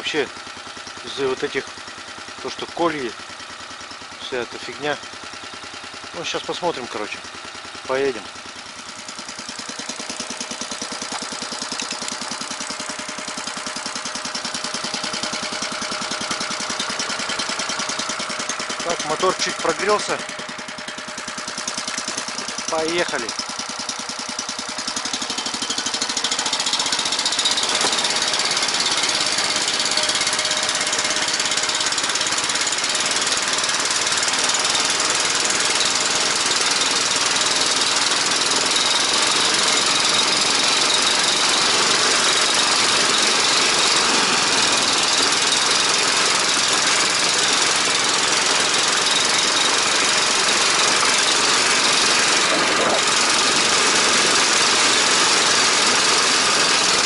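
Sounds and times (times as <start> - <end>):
snow tow engine driving: 0.0 - 57.0.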